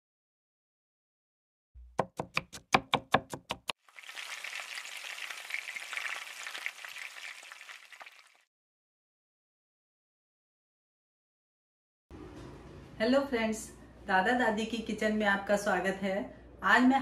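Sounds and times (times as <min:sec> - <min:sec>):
knife chopping on cutting board: 0:01.8 - 0:03.7
food sizzling in a pan: 0:03.8 - 0:08.5.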